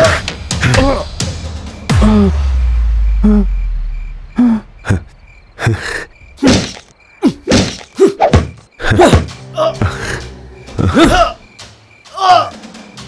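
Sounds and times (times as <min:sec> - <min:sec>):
heavy punches and kicks: 0:06.4 - 0:09.3.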